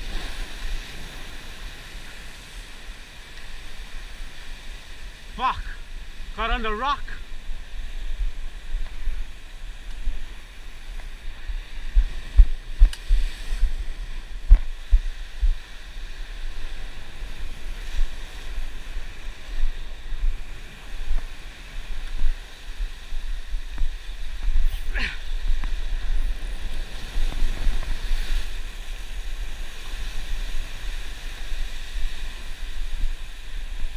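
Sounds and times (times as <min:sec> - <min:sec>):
ocean surf washing over rocks: 0:00.0 - 0:33.9
wind buffeting microphone: 0:07.1 - 0:33.9.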